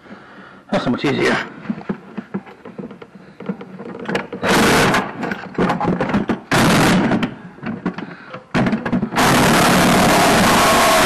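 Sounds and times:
metal parts knocking and clanking: 0:01.8 - 0:06.5
power tool running: 0:09.2 - 0:11.0.

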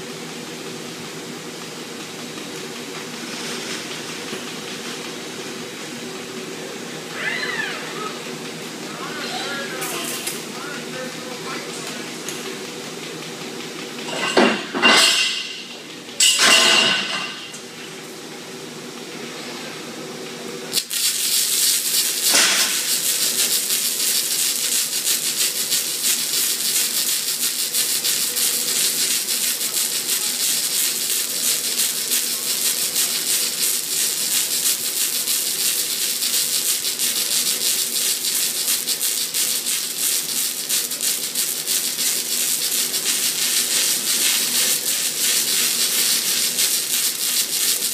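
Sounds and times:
welding torches crackling hiss: 0:20.7 - 0:47.9.

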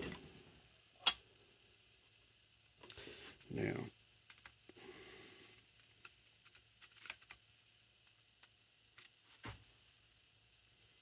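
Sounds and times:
small metal parts clicking: 0:06.0 - 0:07.4.

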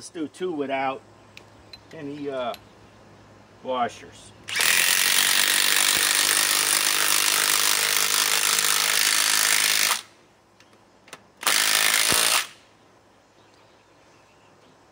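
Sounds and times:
impact wrench hammering screw into wood: 0:04.5 - 0:10.1, 0:11.4 - 0:12.6.

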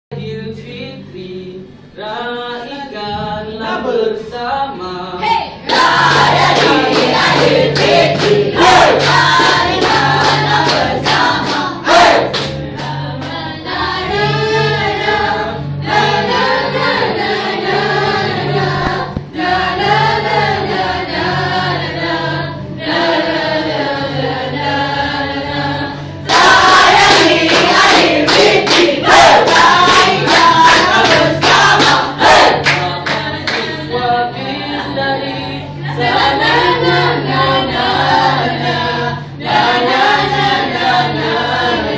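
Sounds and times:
group singing together: 0:00.1 - 0:41.9
hand claps: 0:05.7 - 0:13.4, 0:26.3 - 0:33.8.

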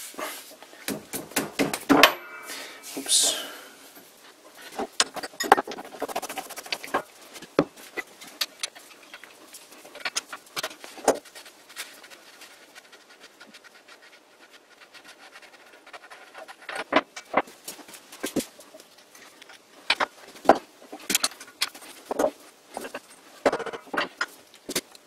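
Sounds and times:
metallic clicks and knocks: 0:01.0 - 0:02.5
faint handling sounds: 0:02.2 - 0:25.0.

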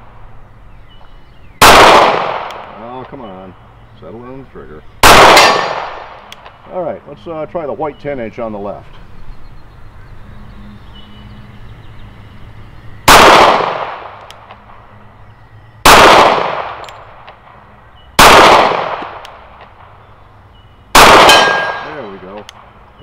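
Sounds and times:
pistol shots: 0:01.6 - 0:02.8, 0:05.0 - 0:06.6, 0:13.0 - 0:14.2, 0:15.8 - 0:17.0, 0:18.2 - 0:19.7, 0:20.9 - 0:22.0.

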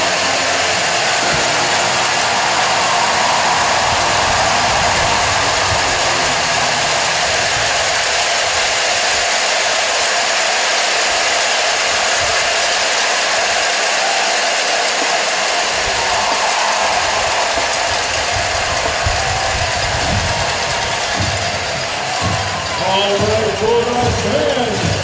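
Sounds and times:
stadium crowd cheering: 0:00.0 - 0:25.0
cowbells clattering: 0:17.5 - 0:25.0.

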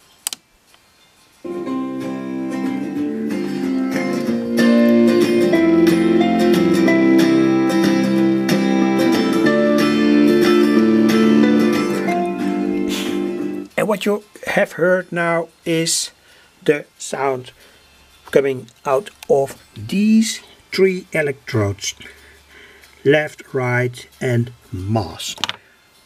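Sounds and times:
instrumental music over loudspeaker: 0:01.5 - 0:13.8.

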